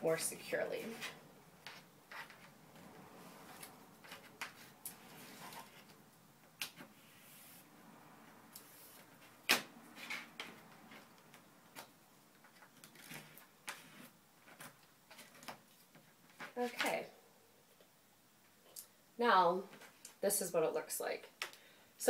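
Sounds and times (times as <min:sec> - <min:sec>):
wooden stick scraping paper: 0:00.8 - 0:02.6, 0:03.2 - 0:06.0, 0:12.6 - 0:15.6.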